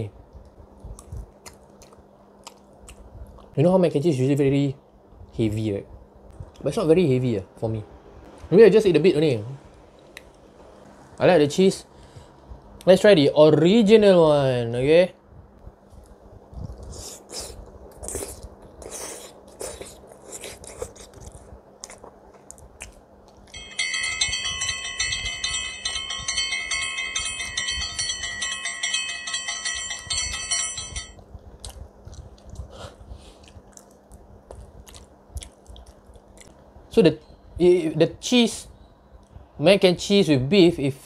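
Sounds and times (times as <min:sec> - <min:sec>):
biting and chewing: 0:16.0 - 0:23.6, 0:31.4 - 0:36.6
bright chime-like ringing: 0:23.6 - 0:31.2.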